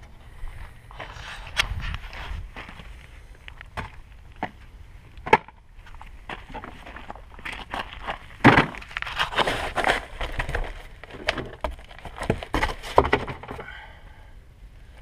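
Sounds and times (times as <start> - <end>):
cardboard rustling and scraping: 5.9 - 13.6
plastic pan knocking on ground: 8.4 - 8.8.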